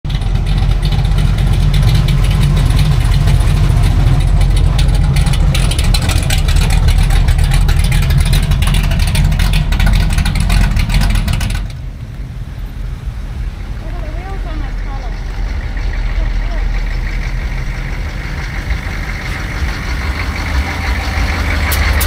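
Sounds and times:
car engine rumbling: 0:00.0 - 0:22.0.

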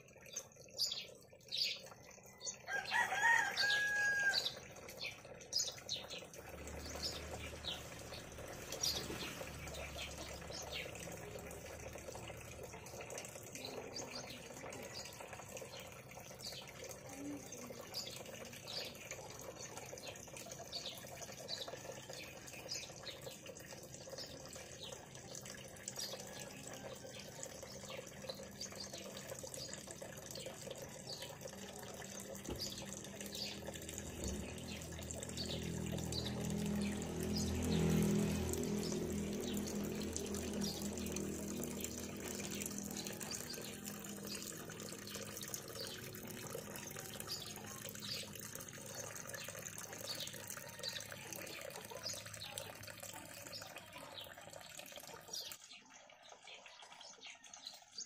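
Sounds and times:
water running into a bucket: 0:00.0 - 0:58.0
rooster crowing: 0:02.6 - 0:04.6.

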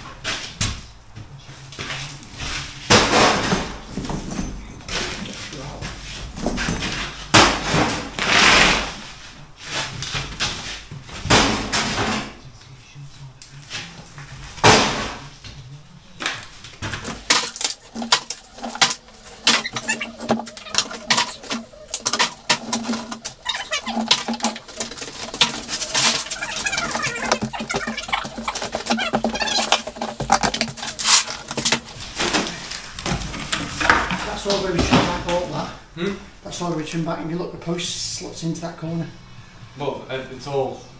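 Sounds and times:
debris clattering: 0:16.8 - 0:35.3
rubble clunking into tub: 0:16.8 - 0:35.4.

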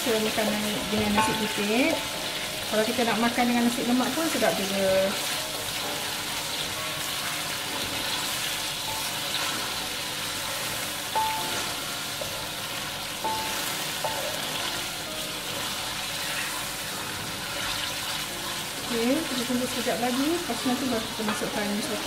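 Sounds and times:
chili paste sizzling in oil: 0:00.0 - 0:22.0.

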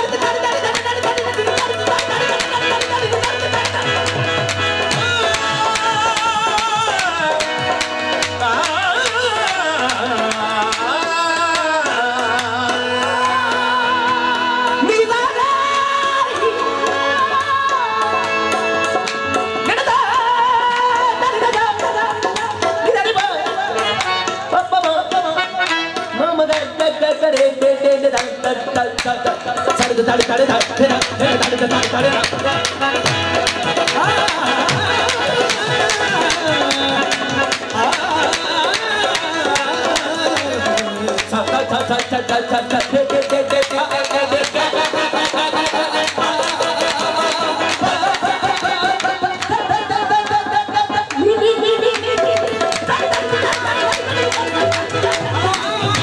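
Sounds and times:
tabla strokes: 0:00.0 - 0:13.6, 0:15.7 - 0:56.0
harmonium playing: 0:00.0 - 0:56.0
hand clapping: 0:00.7 - 0:12.5, 0:20.8 - 0:27.6, 0:29.0 - 0:56.0
person singing: 0:19.6 - 0:56.0.

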